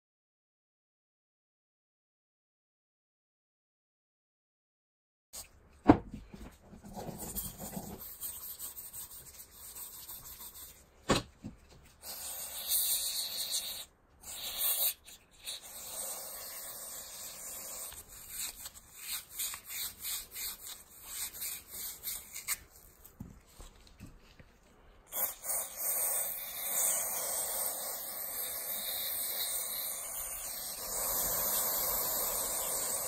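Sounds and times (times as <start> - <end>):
scratchy brush scrubbing metal: 7.0 - 10.9.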